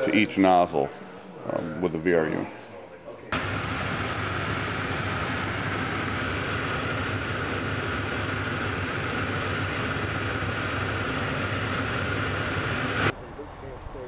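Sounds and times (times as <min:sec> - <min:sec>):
airplane engine drone: 0:03.3 - 0:14.0.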